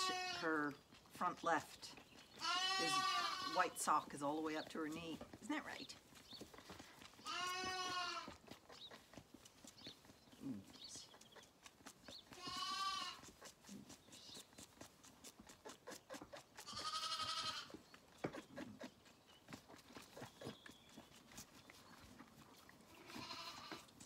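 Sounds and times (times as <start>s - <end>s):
lamb bleating: 0.0s - 0.5s, 2.4s - 3.8s, 7.2s - 8.4s, 12.3s - 13.3s, 15.9s - 17.8s, 22.9s - 23.9s.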